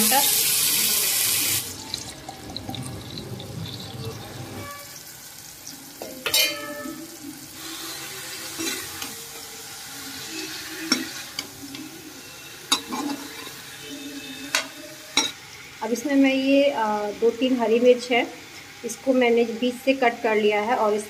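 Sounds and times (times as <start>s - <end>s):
vegetables frying in oil: 0.0s - 21.0s
metal spatula scraping pan: 4.5s - 5.1s
spatula clinking against pan: 6.2s - 7.0s.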